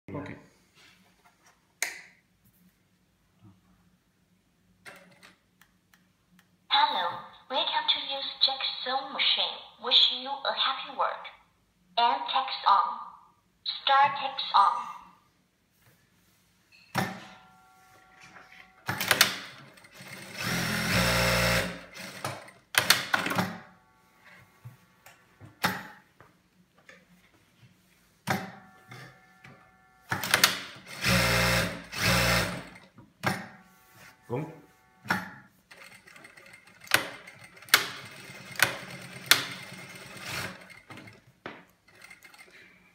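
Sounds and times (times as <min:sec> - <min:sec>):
sewing machine stitching: 0:18.9 - 0:23.5, 0:30.1 - 0:32.9, 0:35.2 - 0:41.3.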